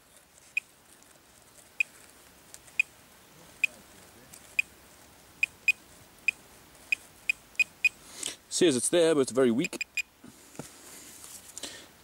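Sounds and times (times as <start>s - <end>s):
pinpointer high-pitched beeps: 5.4s - 8.0s, 9.6s - 10.1s.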